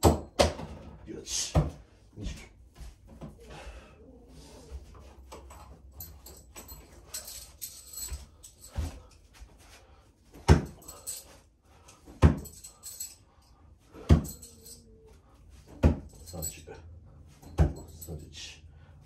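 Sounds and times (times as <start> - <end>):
steel spikes clinking: 10.6 - 15.1, 16.1 - 16.8.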